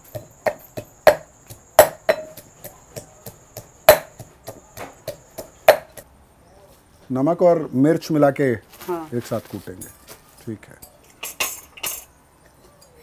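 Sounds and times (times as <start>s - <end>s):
metal pestle pounding in mortar: 0.0s - 6.0s.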